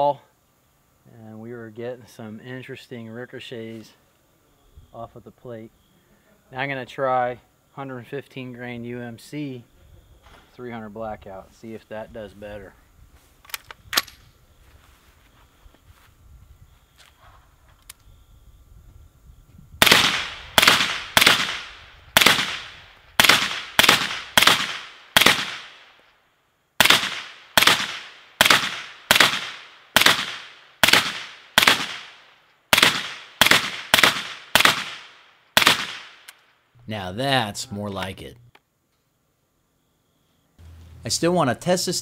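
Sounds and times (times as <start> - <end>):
suppressed rifle shots: 19.8 - 25.9, 26.8 - 36.4.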